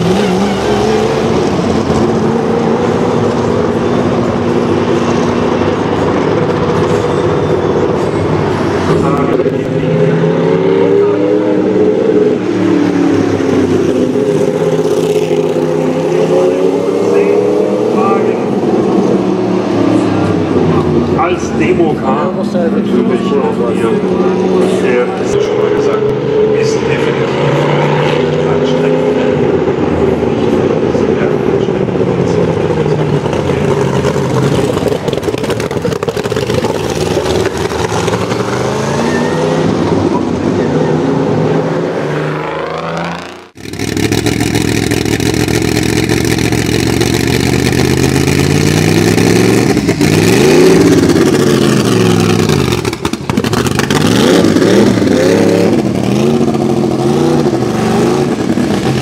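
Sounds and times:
race car engine running: 0.0 - 40.6, 42.5 - 59.0
rapid exhaust crackling: 30.9 - 39.1, 42.7 - 59.0.

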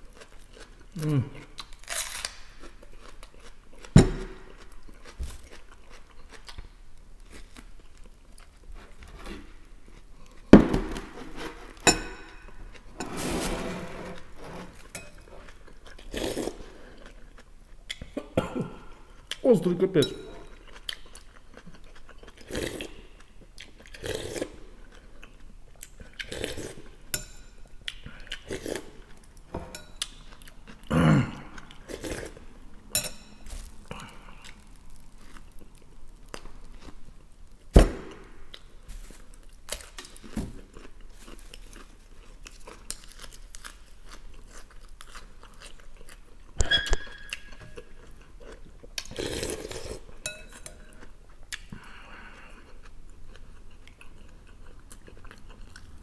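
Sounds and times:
person chewing and smacking: 0.0 - 11.1, 15.0 - 19.6, 20.4 - 56.0
metal spoon clinking glass bowl: 32.9 - 33.4.

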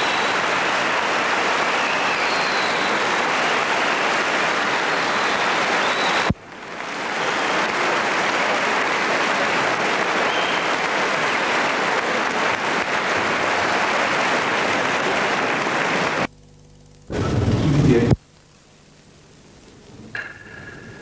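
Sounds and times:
audience applauding: 0.0 - 16.3.

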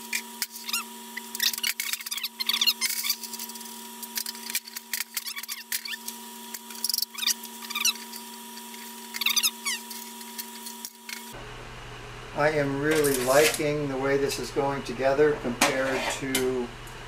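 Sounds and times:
electrical hum: 0.0 - 17.0
metal rubbing on metal squeaks: 0.2 - 11.3.

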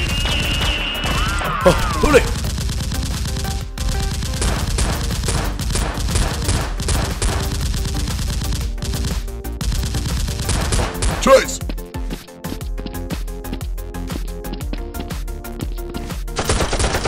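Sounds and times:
automatic gunfire sound effects: 0.0 - 11.6.

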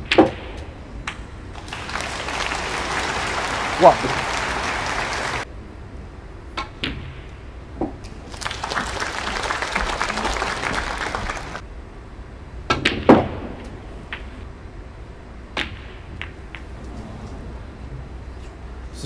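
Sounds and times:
audience applause: 1.6 - 5.5, 8.3 - 11.6.

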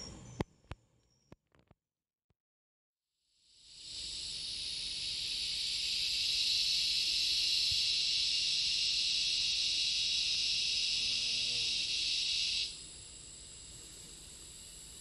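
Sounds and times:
insect chorus buzzing: 3.4 - 15.0.

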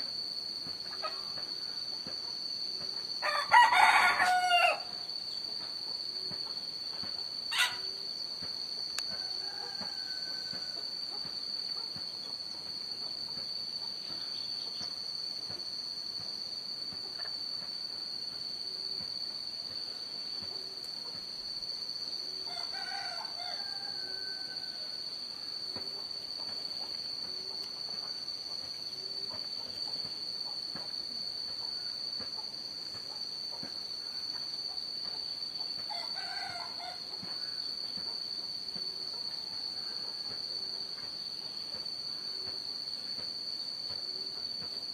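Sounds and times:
high-pitched insect drone: 0.0 - 44.9
rooster crowing: 3.2 - 5.0, 7.5 - 7.9, 9.1 - 11.0, 22.4 - 25.1, 35.9 - 37.7, 39.2 - 40.8.

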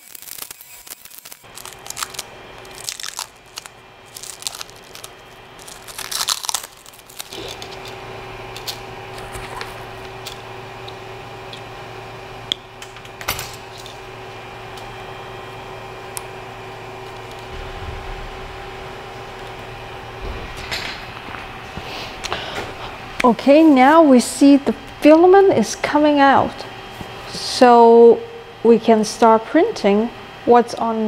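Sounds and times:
plastic wrapping crinkling and tearing: 0.0 - 8.0
printer fans humming: 1.1 - 31.0.

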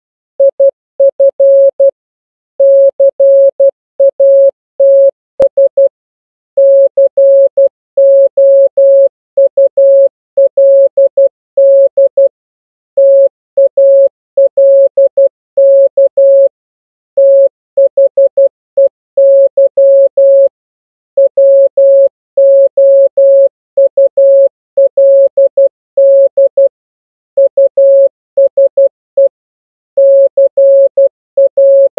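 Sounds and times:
morse code tone: 2.6 - 5.9, 6.6 - 12.3, 13.0 - 16.5, 17.2 - 20.5, 21.2 - 26.7, 27.4 - 29.3, 30.0 - 31.9.

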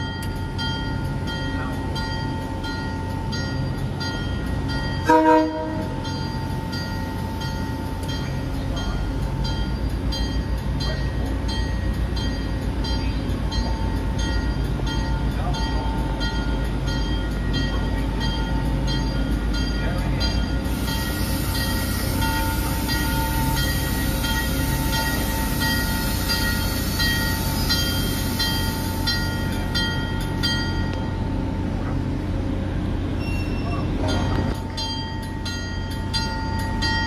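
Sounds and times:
train rumbling: 0.0 - 37.0
train horn blast: 5.1 - 6.0.

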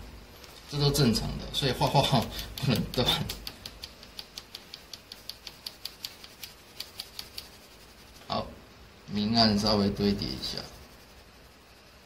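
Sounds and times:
pencil hatching on paper: 1.7 - 8.3.

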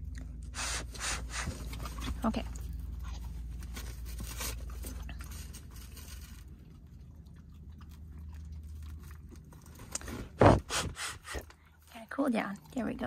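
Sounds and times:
dog chewing food: 4.2 - 10.7.

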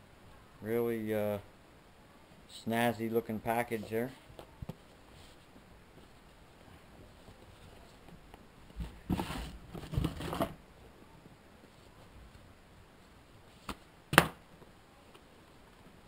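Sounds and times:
cardboard sleeve scraping rustle: 8.8 - 10.6.

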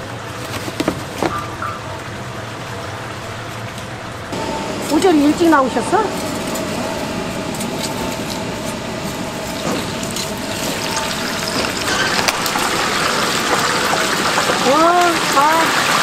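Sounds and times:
chicken deep-frying in oil: 9.4 - 16.0.

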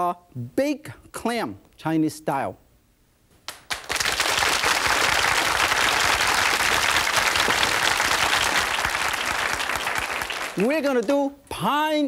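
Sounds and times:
audience applauding: 3.5 - 11.2.

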